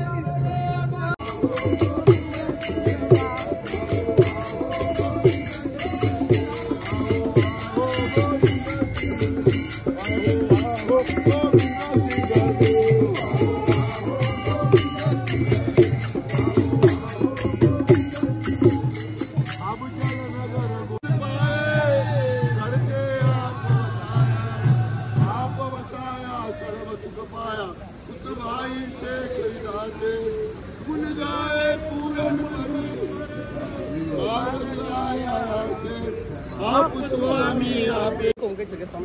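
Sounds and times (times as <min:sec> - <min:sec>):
hand-beaten barrel drum: 0:01.2 - 0:21.0
hand cymbals clashing: 0:01.2 - 0:21.1.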